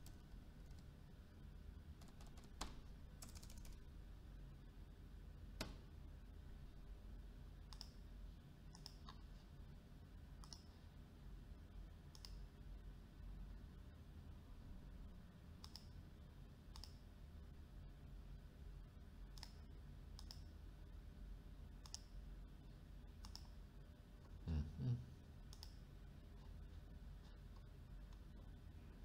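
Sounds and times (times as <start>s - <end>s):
faint low hum: 0.0s - 29.0s
computer mouse clicks: 7.7s - 8.0s, 8.7s - 9.2s, 10.4s - 10.7s, 12.1s - 12.4s, 15.6s - 16.0s, 16.7s - 17.0s, 19.3s - 19.6s, 20.2s - 20.5s, 21.8s - 22.2s, 23.2s - 23.6s, 25.5s - 25.8s.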